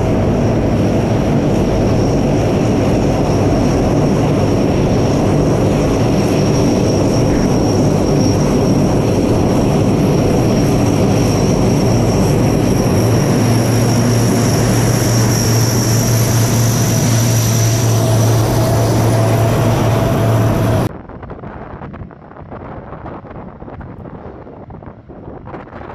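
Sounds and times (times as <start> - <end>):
high engine whine: 0.0 - 22.5
turboprop engines droning: 0.0 - 22.7.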